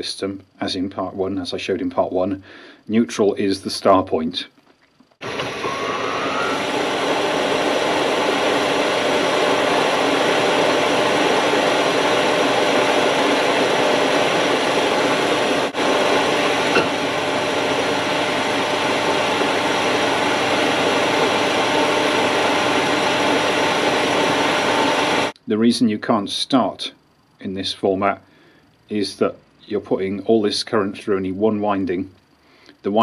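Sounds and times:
machine hissing and humming: 5.2 - 25.4.

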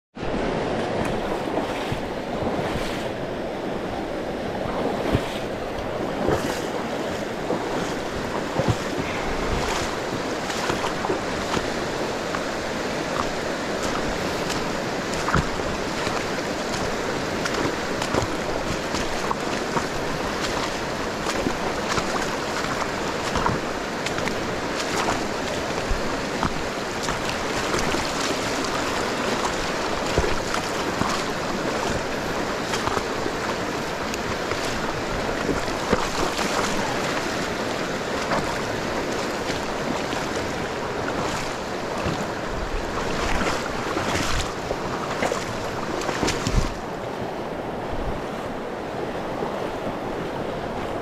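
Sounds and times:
river water rushing: 0.2 - 51.0.

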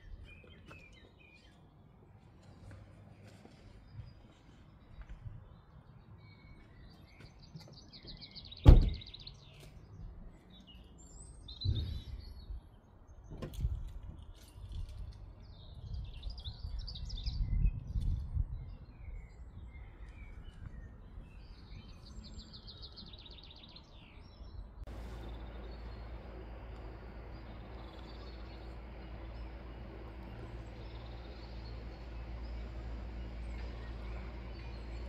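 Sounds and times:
small birds singing: 0.0 - 35.0
low rumbling of handling: 24.8 - 35.0.

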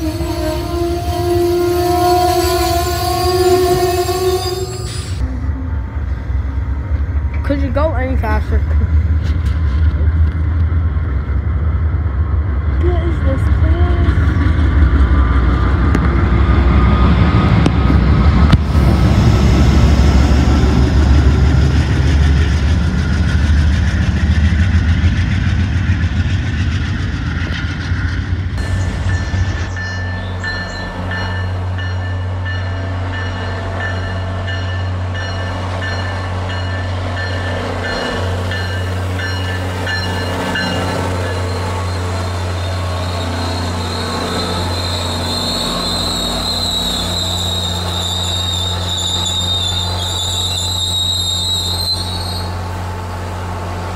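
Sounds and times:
high-pitched wheel squeal: 0.0 - 5.4, 40.9 - 52.6
diesel locomotive drone: 0.0 - 53.9
train wheels on rails: 5.8 - 53.9.

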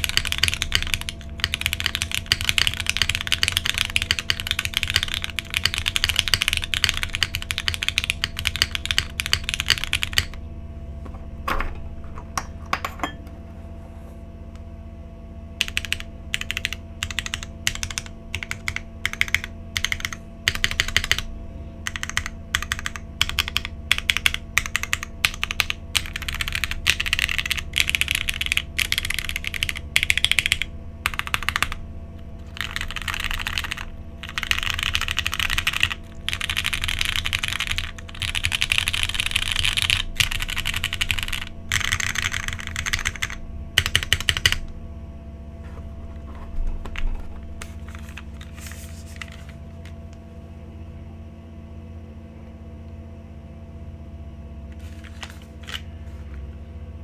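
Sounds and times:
mechanical keyboard typing: 0.0 - 10.4, 15.6 - 44.7, 49.2 - 49.9
steady low hum: 0.0 - 57.0.

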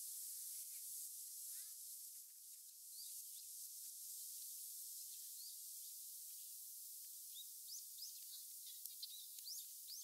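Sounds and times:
steady high hiss: 0.0 - 10.0
bird chirp: 7.3 - 10.0.

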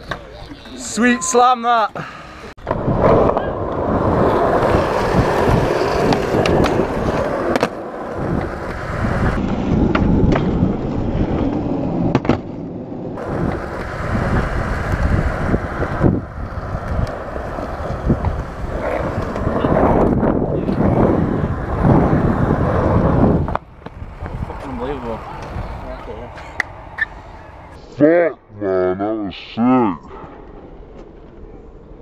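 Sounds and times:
skateboard wheels rolling on concrete: 0.0 - 27.8, 30.1 - 32.0
skateboard clacks: 2.6 - 10.6, 13.2 - 22.4.

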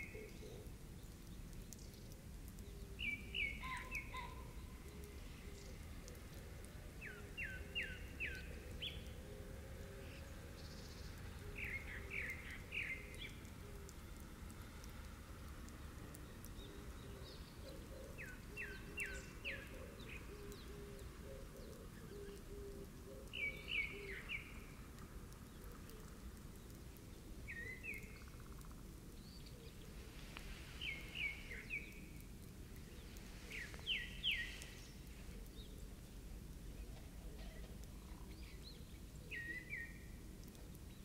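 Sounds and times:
outdoor background hiss: 0.0 - 41.0
songbird singing: 0.0 - 41.0.

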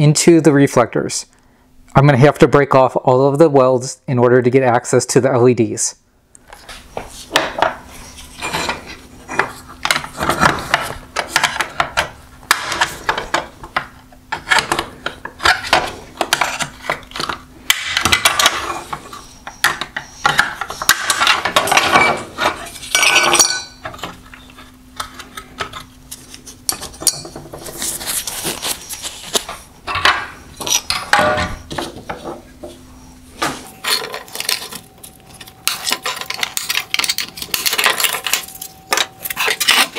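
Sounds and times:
metal pieces clinking: 33.8 - 39.9.

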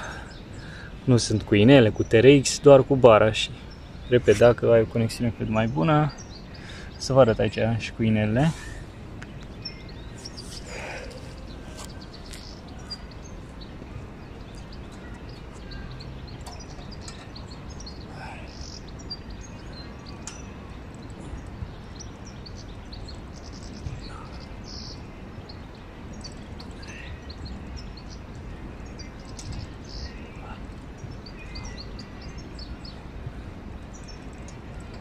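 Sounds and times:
light ticks: 20.2 - 21.2.

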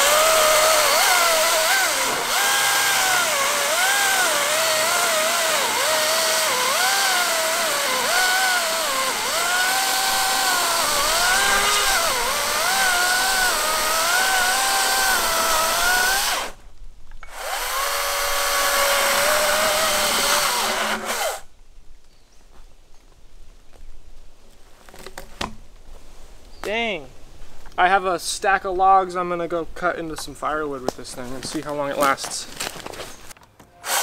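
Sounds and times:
electric chainsaw cutting log: 0.0 - 16.6, 17.3 - 21.5.

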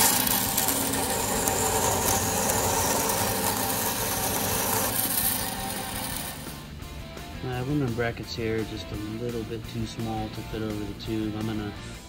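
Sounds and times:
band saw cutting metal: 0.0 - 6.8.

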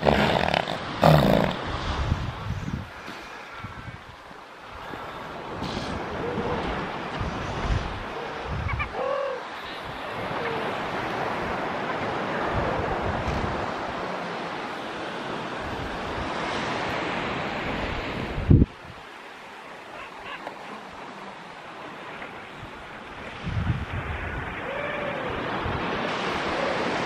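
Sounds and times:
wind noise on microphone: 0.0 - 4.2, 4.8 - 9.2, 9.8 - 13.9, 15.6 - 19.0, 22.6 - 27.0
surf on beach: 0.0 - 27.0.

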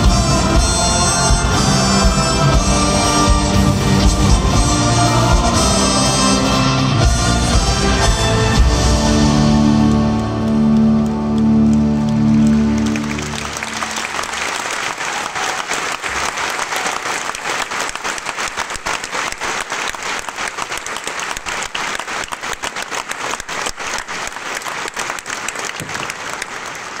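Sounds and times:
audience applause: 9.3 - 27.0.

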